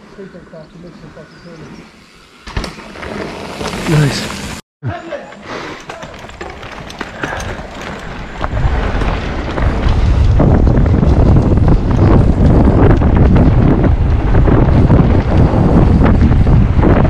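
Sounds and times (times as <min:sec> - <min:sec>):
bike knocks and rattles: 0:02.4 - 0:04.4, 0:05.8 - 0:17.0
wind buffeting microphone: 0:07.2 - 0:17.0.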